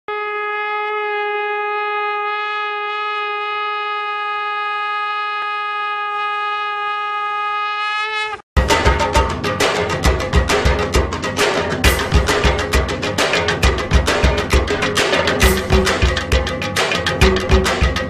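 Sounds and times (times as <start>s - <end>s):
conch shell blown: 0.1s - 8.4s.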